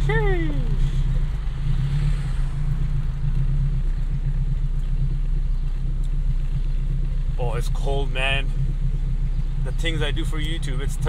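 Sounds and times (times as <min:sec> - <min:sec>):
car engine and exhaust drone: 0:00.0 - 0:11.0.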